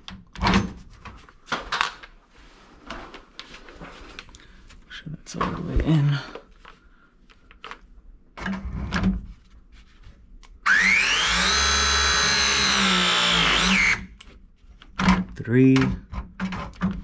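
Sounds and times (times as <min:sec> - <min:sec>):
press tool motor whirring: 0:10.7 - 0:14.0.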